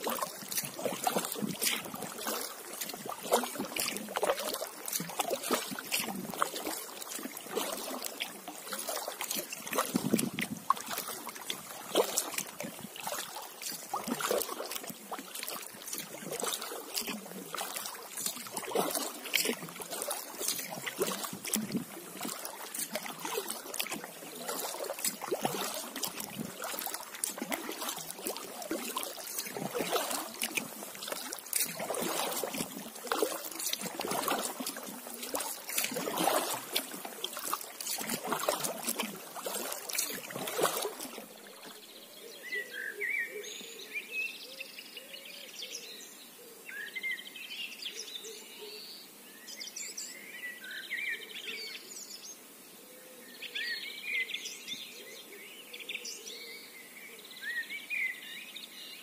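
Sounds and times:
paddle strokes splashing water: 0:00.0 - 0:43.7.

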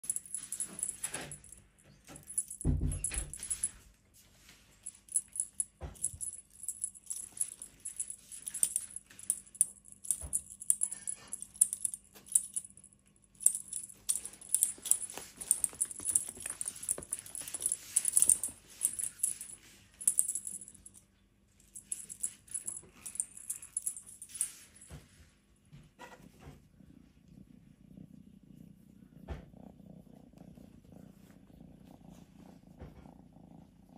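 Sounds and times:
kitten playing rustling and clicking: 0:00.0 - 0:28.1, 0:29.1 - 0:33.6
kitten purring: 0:26.4 - 0:33.9.

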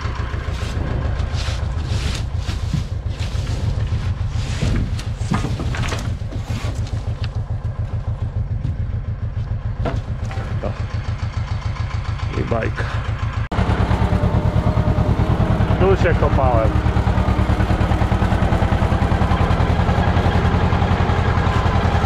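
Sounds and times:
tractor diesel idling: 0:00.0 - 0:22.0
branches scraping on wood: 0:00.4 - 0:07.4.

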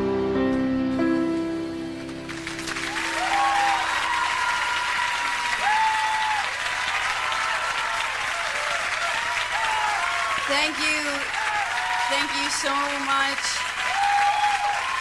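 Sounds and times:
audience applauding and cheering: 0:02.0 - 0:15.0
high whoops: 0:02.9 - 0:12.4, 0:13.5 - 0:15.0.

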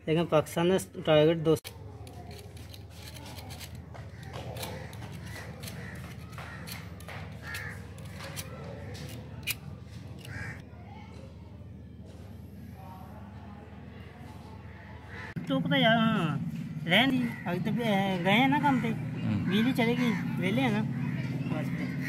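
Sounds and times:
clicks of tools on wire: 0:01.6 - 0:09.6
faint bird calls: 0:17.2 - 0:22.0.

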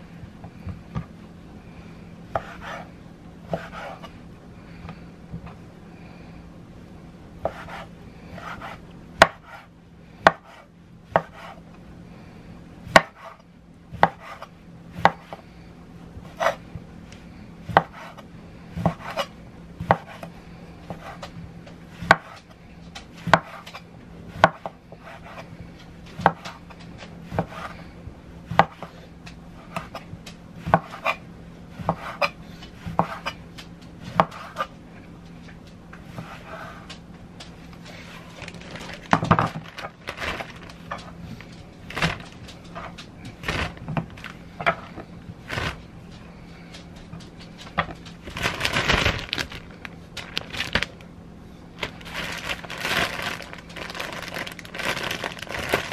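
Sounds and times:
steady low hum: 0:00.0 - 0:55.9
knife chopping vegetables: 0:02.3 - 0:02.9, 0:03.5 - 0:04.2, 0:07.4 - 0:11.6, 0:12.8 - 0:15.5, 0:17.6 - 0:20.3, 0:20.9 - 0:25.5, 0:26.1 - 0:27.8, 0:28.5 - 0:29.0, 0:29.6 - 0:33.4, 0:34.0 - 0:34.7.

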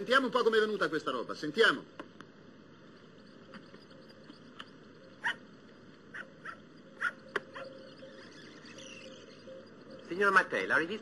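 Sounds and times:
tape hiss: 0:00.0 - 0:11.0
squeaky chirps: 0:02.8 - 0:11.0.

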